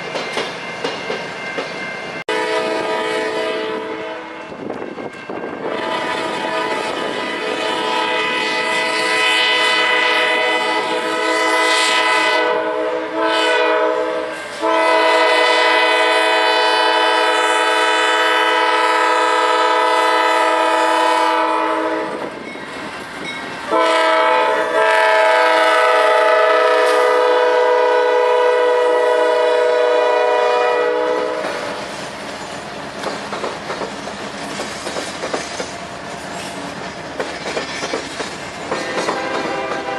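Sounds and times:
freight cars clickety-clack: 0.0s - 2.0s, 31.4s - 39.9s
locomotive air horn blasts: 2.3s - 4.6s, 5.6s - 22.2s, 23.7s - 31.8s, 38.8s - 39.9s.

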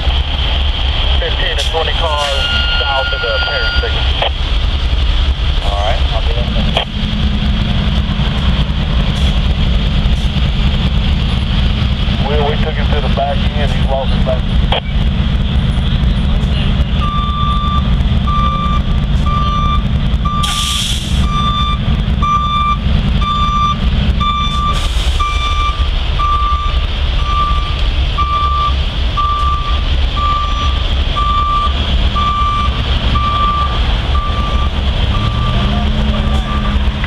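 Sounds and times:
truck engine running: 0.0s - 37.0s
reversing alarm beeping: 1.9s - 4.3s, 17.0s - 36.8s.

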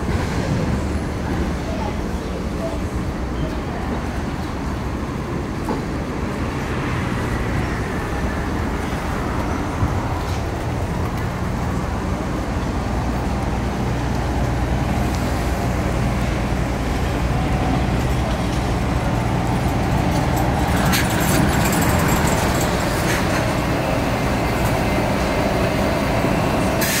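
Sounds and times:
bus engine low hum: 0.0s - 27.0s
street traffic noise: 0.0s - 27.0s.

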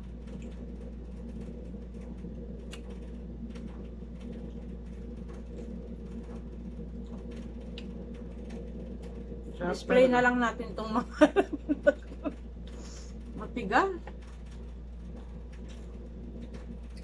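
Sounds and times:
air conditioner humming: 0.0s - 17.0s
faint clicks from eating: 2.0s - 6.4s.

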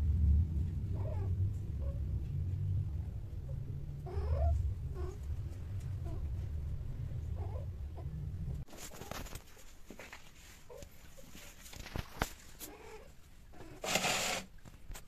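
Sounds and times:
steady low rumble: 0.0s - 12.1s
faint clicks and rustles: 0.4s - 15.0s
cats yowling and growling: 0.9s - 2.0s, 3.5s - 5.3s.

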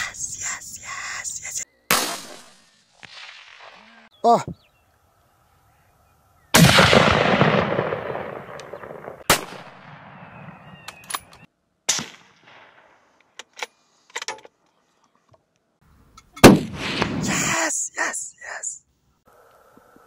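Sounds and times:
rifle shot with echo: 1.9s - 3.8s, 6.6s - 13.0s, 16.4s - 17.3s
sharp cracks: 1.9s - 3.9s, 6.5s - 13.4s, 16.3s - 17.5s.

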